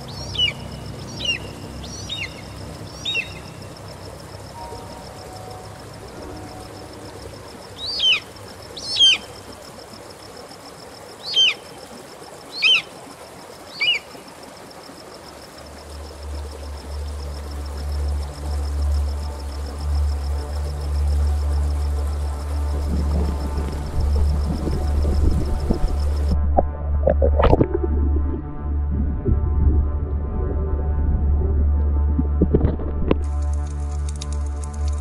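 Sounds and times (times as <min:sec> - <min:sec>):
bird calling: 0:00.0 - 0:03.7, 0:07.8 - 0:09.3, 0:11.2 - 0:11.6, 0:12.5 - 0:12.9, 0:13.7 - 0:14.2
low rumble: 0:22.6 - 0:33.3.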